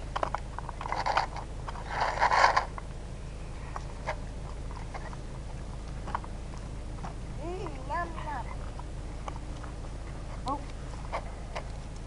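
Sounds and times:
scraping rustle: 0:00.0 - 0:02.8
puppies chewing food: 0:00.0 - 0:12.0.

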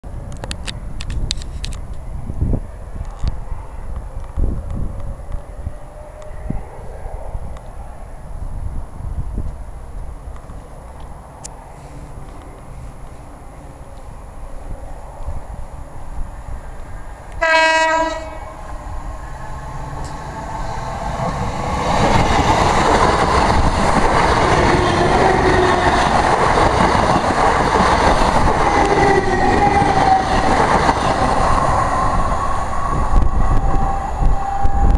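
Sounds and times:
train wheel and rail noise: 0:00.1 - 0:34.9
train horn blast: 0:17.4 - 0:18.6, 0:33.1 - 0:34.9.

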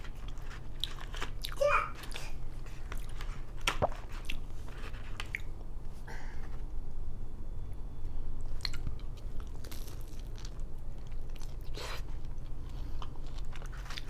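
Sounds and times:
crisp crunching and chewing: 0:00.0 - 0:05.5, 0:08.5 - 0:14.0
steady low hum: 0:00.0 - 0:14.0.

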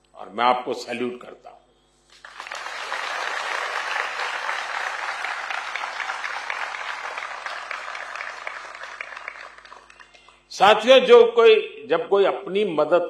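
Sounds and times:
audience applauding: 0:02.2 - 0:10.3.

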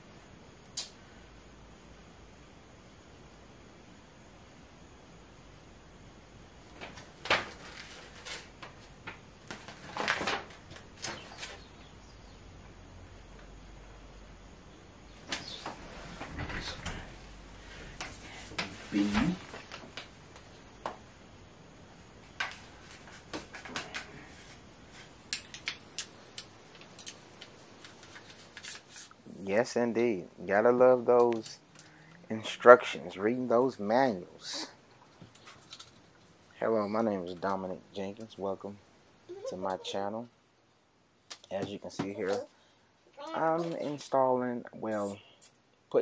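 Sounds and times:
paper sheets rustling: 0:06.7 - 0:11.6.

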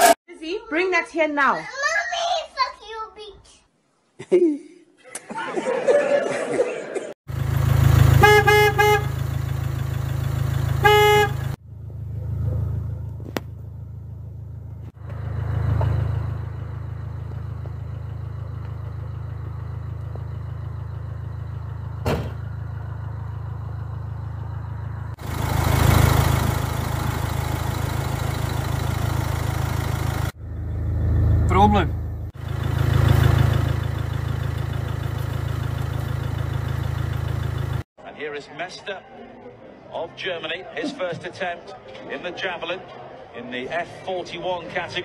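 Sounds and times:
truck engine idling: 0:07.3 - 0:37.9
truck horn honking: 0:08.0 - 0:09.8, 0:10.4 - 0:11.6.

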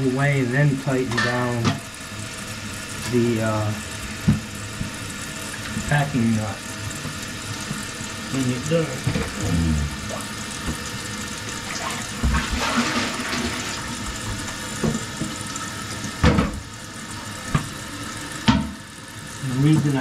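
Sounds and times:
toilet tank refilling: 0:00.0 - 0:20.0
sharp knocks in pipes: 0:14.2 - 0:15.4, 0:16.2 - 0:16.7, 0:18.4 - 0:18.8.

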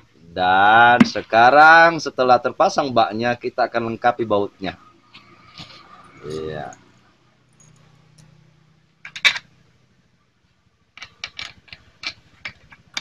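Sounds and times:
metal bolts clinking on metal: 0:07.5 - 0:08.4, 0:09.0 - 0:09.6, 0:11.0 - 0:13.0.

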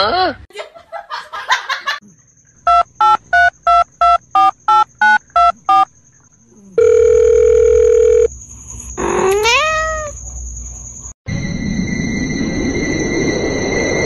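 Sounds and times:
long telephone ring tone: 0:06.8 - 0:08.3
cat meowing: 0:09.0 - 0:10.2.

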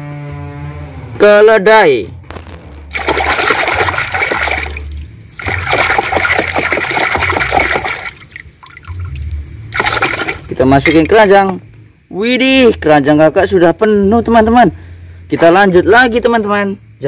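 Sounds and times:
water splashing and sloshing: 0:02.3 - 0:11.6.

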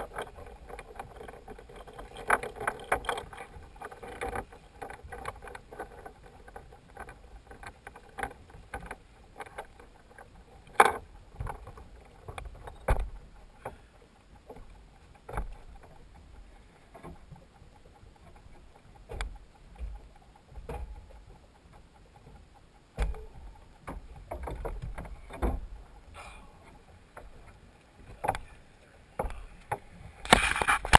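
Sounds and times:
boat engine rumble with hum: 0:00.0 - 0:30.9
sharp knocks and thumps: 0:10.8 - 0:13.2, 0:23.0 - 0:25.8.

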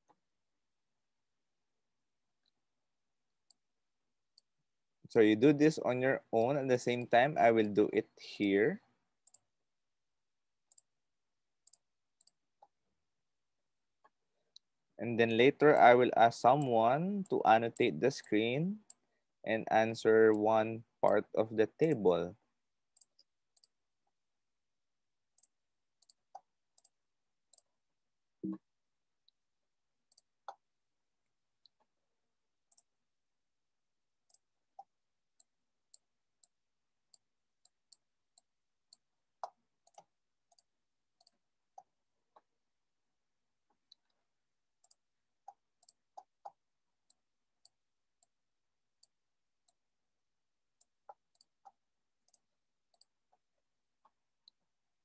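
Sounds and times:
keyboard typing: 0:34.3 - 0:42.5.

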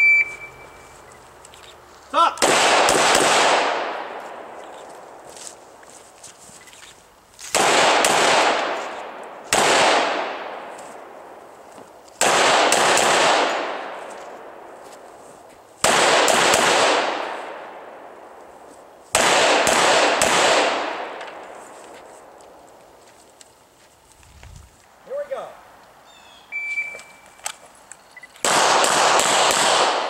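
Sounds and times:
pistol shots: 0:02.4 - 0:04.6, 0:07.5 - 0:10.7, 0:12.2 - 0:14.6, 0:15.8 - 0:18.1, 0:19.1 - 0:21.5, 0:28.4 - 0:30.0.

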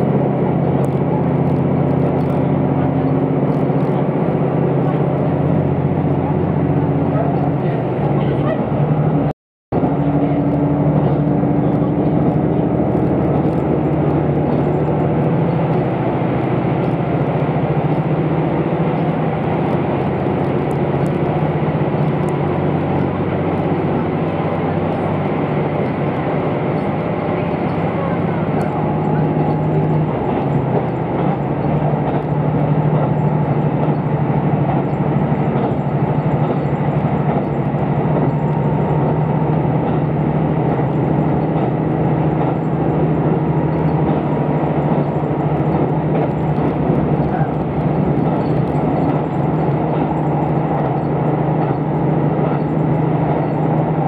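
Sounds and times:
train wheels on rail: 0:00.0 - 0:54.0.

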